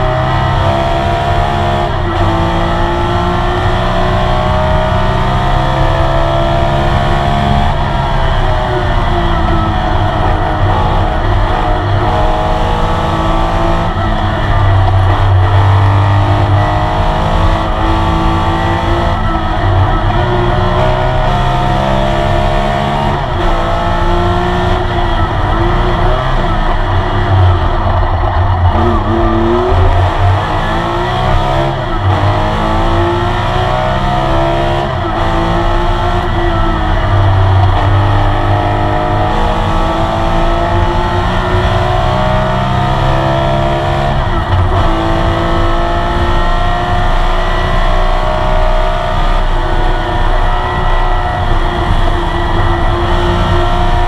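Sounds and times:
race car engine revving: 0:00.0 - 0:54.0.

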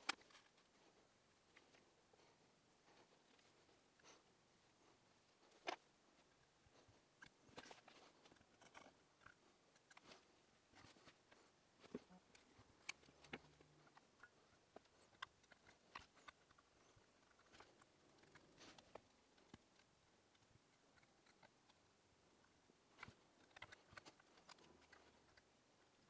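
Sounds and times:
small tweezer clicks and scrapes: 0:07.2 - 0:11.2, 0:12.3 - 0:21.9, 0:23.0 - 0:26.0.

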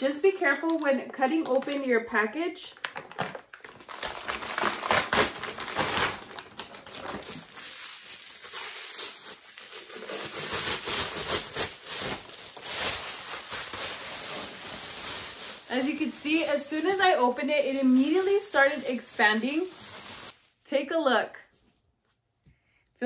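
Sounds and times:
plastic packaging crinkling: 0:02.7 - 0:20.6.

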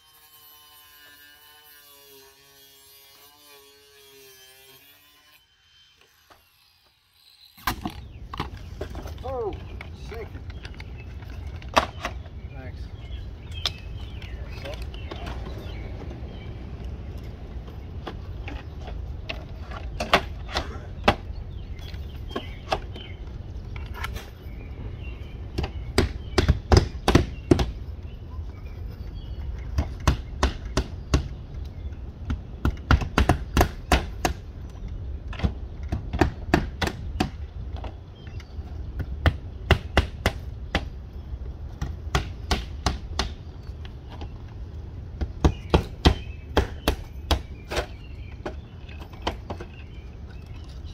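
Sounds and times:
hammers driving nails: 0:25.6 - 0:27.8, 0:32.3 - 0:34.4, 0:35.3 - 0:37.4, 0:41.8 - 0:43.4.

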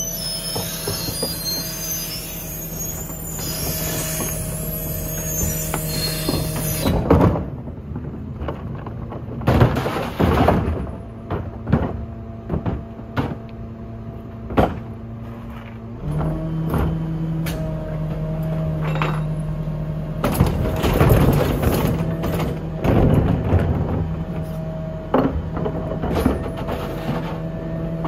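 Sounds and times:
compactor metallic squeal: 0:00.0 - 0:07.1
hydraulics engaging: 0:00.0 - 0:07.5
garbage truck idling: 0:00.0 - 0:28.0.

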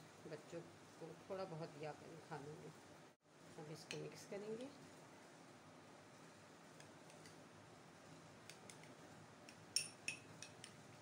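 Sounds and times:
spoon clicking against glass: 0:09.5 - 0:10.8.

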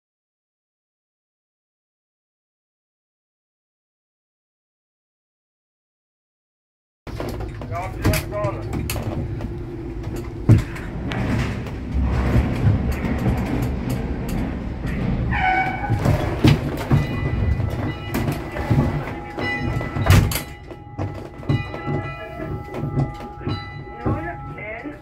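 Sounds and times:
metal squeal: 0:07.1 - 0:25.0
ship hulls grinding and thudding: 0:07.1 - 0:25.0
ringing metallic tones: 0:12.9 - 0:25.0.

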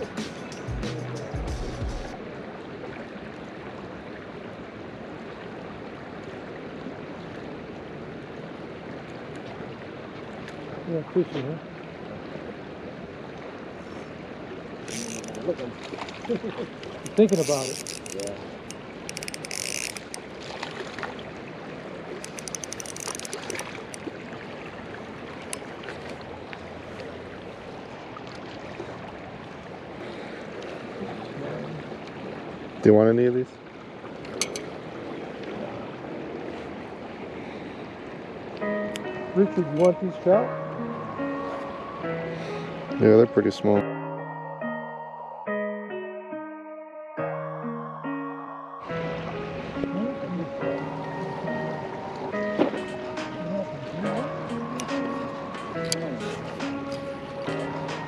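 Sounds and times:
river rushing: 0:02.1 - 0:43.8, 0:47.9 - 0:58.0
spinning reel clicking: 0:14.9 - 0:15.4, 0:17.1 - 0:18.3, 0:19.1 - 0:20.2, 0:22.2 - 0:23.6.

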